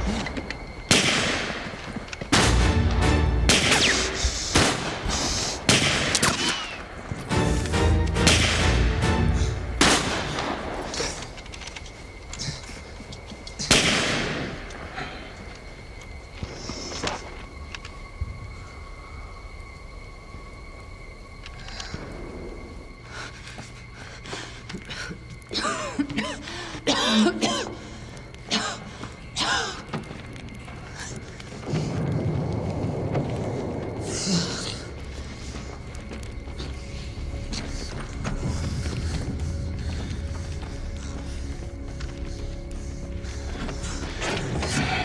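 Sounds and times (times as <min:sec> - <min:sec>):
film score music: 0:00.0 - 0:05.2, 0:05.9 - 0:14.8, 0:21.4 - 0:45.0
gunshots: 0:00.9 - 0:01.6, 0:02.3 - 0:02.8, 0:03.4 - 0:06.5, 0:08.2 - 0:08.8, 0:09.8 - 0:10.6.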